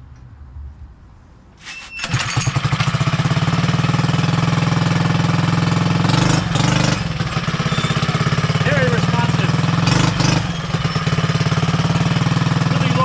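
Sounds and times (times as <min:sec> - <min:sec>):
pull starter: 0:01.6 - 0:03.6
small four-stroke engine running: 0:02.0 - 0:13.0.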